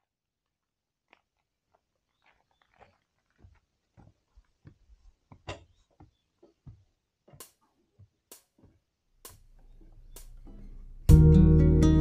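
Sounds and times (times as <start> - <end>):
footsteps on wooden steps: 1.1 - 10.6.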